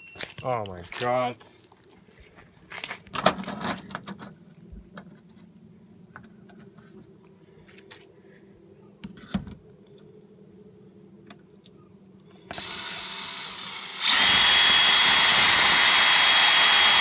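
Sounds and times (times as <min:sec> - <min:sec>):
faint steady hum: 0:01.0 - 0:14.1.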